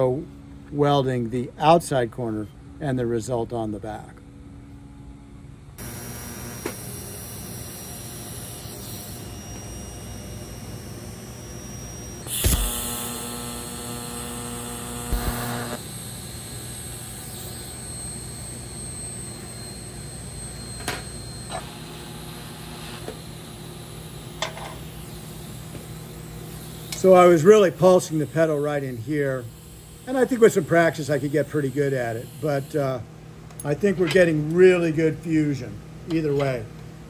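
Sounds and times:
welding arc hiss and hum: 5.6s - 36.7s
sharp loud arc burst: 12.3s - 15.8s.

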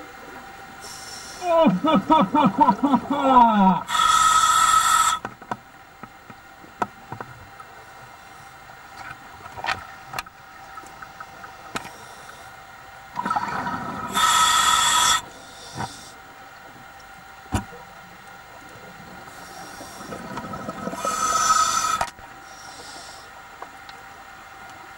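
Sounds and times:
regulator inhalation hiss: 0.8s - 1.4s, 3.8s - 5.3s, 14.1s - 16.2s, 21.0s - 23.3s
exhaled bubbles rushing: 13.1s - 14.2s, 20.0s - 21.2s.

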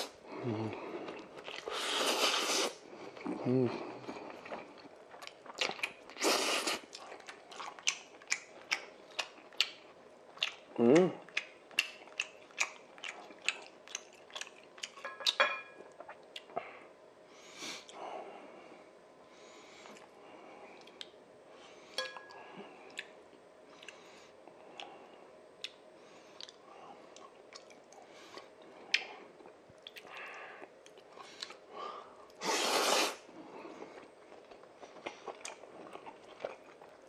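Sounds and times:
close-up chewing noodles: 0.0s - 15.4s, 32.3s - 37.0s.

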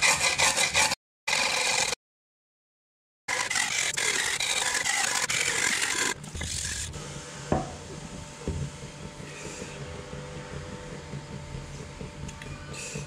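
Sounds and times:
knife scraping on whetstone: 0.0s - 2.0s
cleaver knocking on wooden board: 7.5s - 7.8s.

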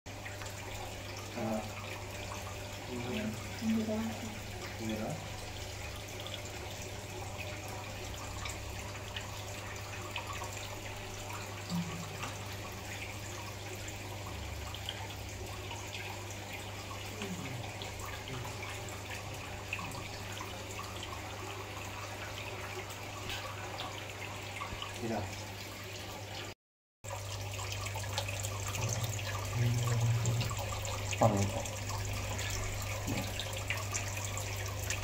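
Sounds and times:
water trickling and dripping: 0.1s - 35.0s.

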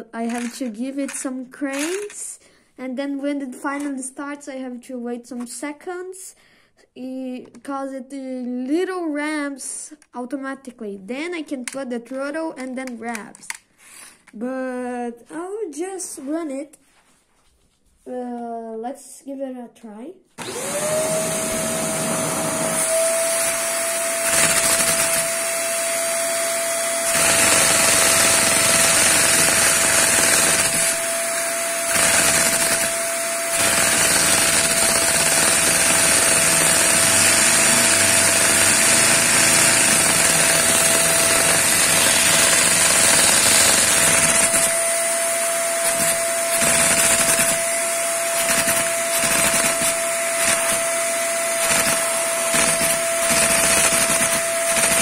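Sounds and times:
vacuum cleaner whine and hiss: 20.4s - 24.2s
rapid mechanical clatter: 31.9s - 44.7s, 51.6s - 55.0s.

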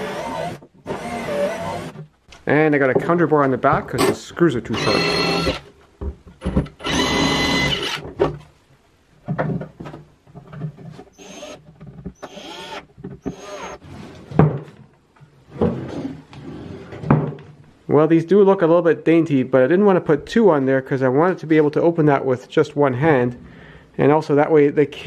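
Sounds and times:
cordless drill drilling wood: 0.0s - 2.0s, 4.8s - 5.6s, 6.8s - 8.0s, 11.1s - 11.6s, 12.2s - 13.8s.

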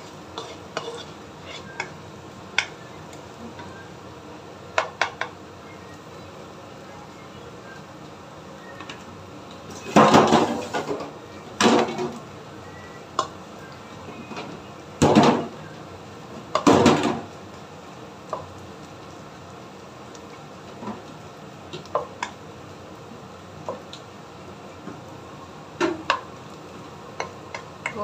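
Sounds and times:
wooden spatula scraping a wok: 0.0s - 1.9s
food frying in a wok: 0.0s - 28.0s
spatula tapping on a pan: 2.5s - 2.8s, 4.7s - 5.4s, 21.8s - 22.4s, 25.8s - 26.3s, 27.2s - 28.0s.

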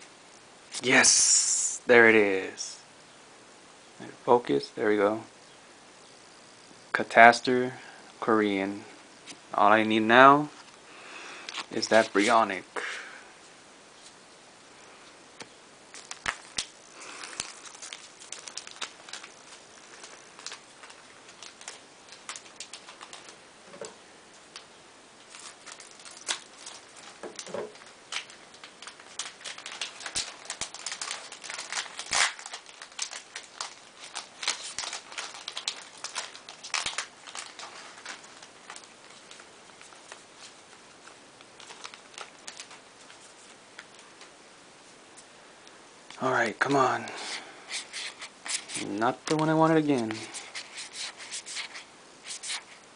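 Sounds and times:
wrapper rustling: 15.9s - 23.4s, 25.2s - 44.1s, 47.1s - 52.9s.

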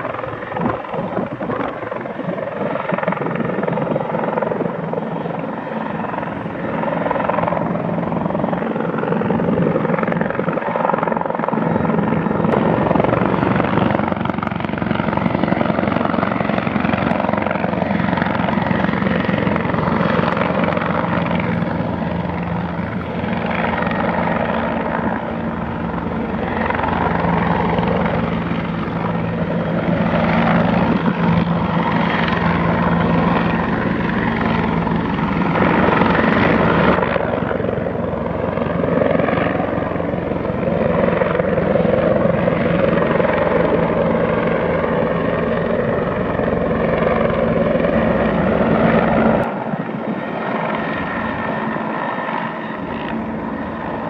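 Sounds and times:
helicopter rotor beat: 0.0s - 54.0s.

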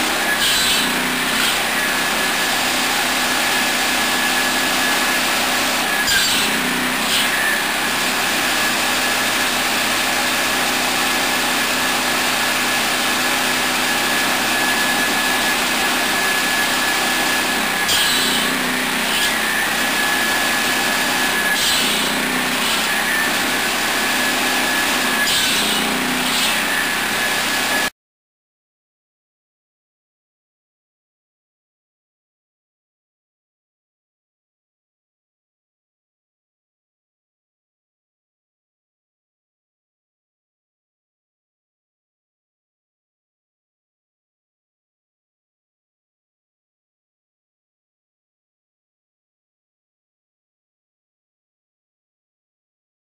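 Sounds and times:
circular saw blade whine: 0.0s - 27.9s
saw blade cutting wood: 0.0s - 27.9s
petrol engine running: 6.7s - 27.9s.

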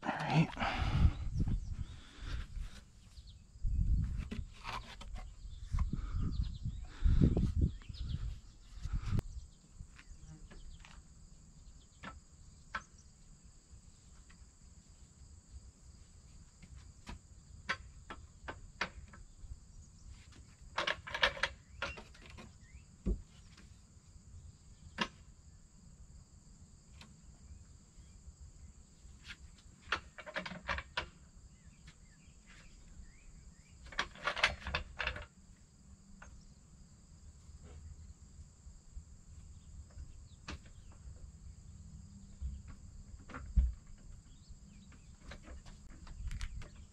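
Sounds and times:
insects chorus: 0.0s - 46.9s
wooden post knocking and scraping: 3.9s - 6.1s, 42.4s - 46.9s.

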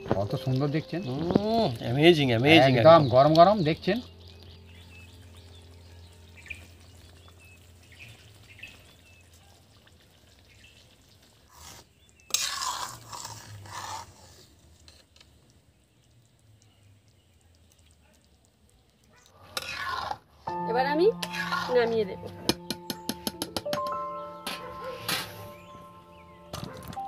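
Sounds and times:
spoon stirring and scraping pan: 11.5s - 15.4s, 19.4s - 20.2s, 21.2s - 21.9s.

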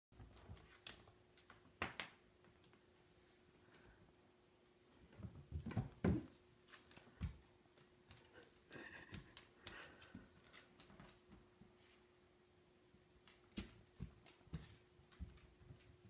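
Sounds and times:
dog thumping on floor: 5.1s - 7.5s.

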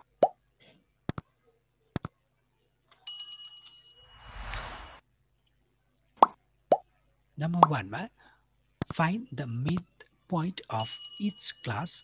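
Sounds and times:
short whoosh: 4.2s - 5.0s.

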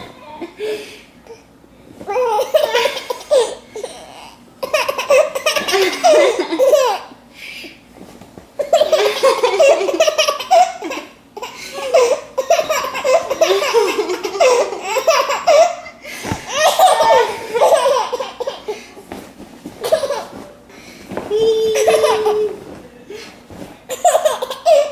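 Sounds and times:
baby laughing: 2.1s - 7.1s, 8.6s - 18.8s, 21.3s - 22.6s, 23.9s - 24.9s.

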